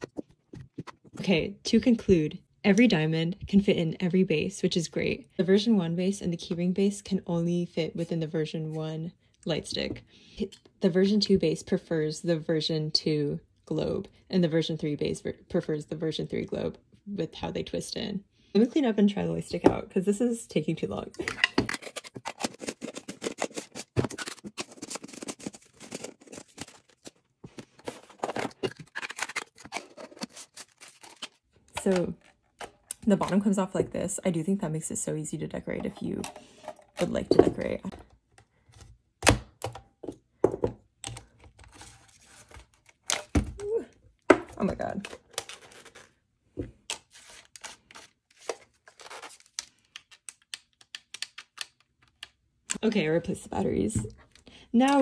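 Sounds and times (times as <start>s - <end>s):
plastic pieces clicking together: 49.6s - 52.8s.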